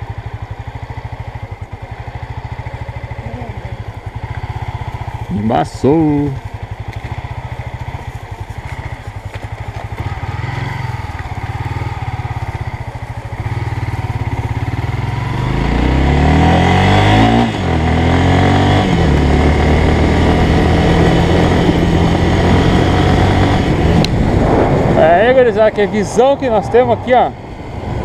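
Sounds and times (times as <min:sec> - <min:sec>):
motorcycle engine revving: 0:00.0 - 0:28.0.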